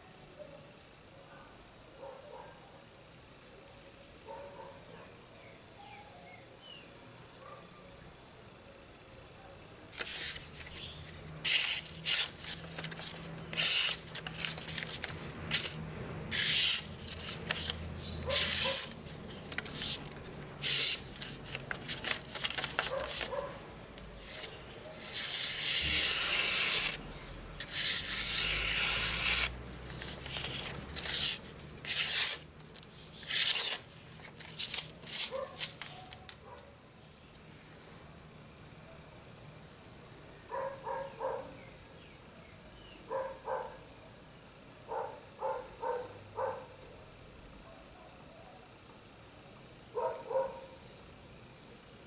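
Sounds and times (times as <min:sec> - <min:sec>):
knife slicing through paper: 0:09.9 - 0:23.6, 0:24.2 - 0:27.0, 0:27.6 - 0:36.2.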